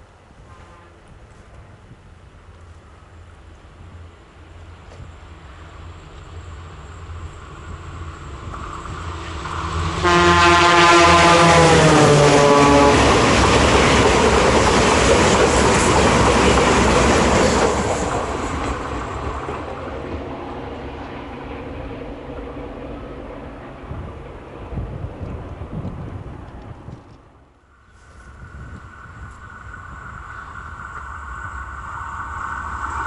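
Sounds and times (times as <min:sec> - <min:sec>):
train wheels rolling on rails: 0:00.0 - 0:33.0
train horn: 0:00.4 - 0:01.4, 0:09.8 - 0:13.5.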